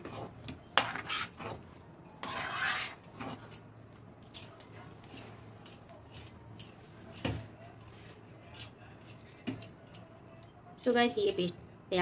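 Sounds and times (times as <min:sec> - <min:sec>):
spoon scraping thick paste in pan: 0:00.0 - 0:03.7, 0:04.8 - 0:10.2.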